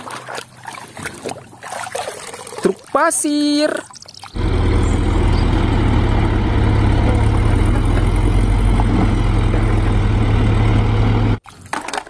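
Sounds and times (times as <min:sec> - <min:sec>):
diesel truck engine running: 0:04.4 - 0:11.4.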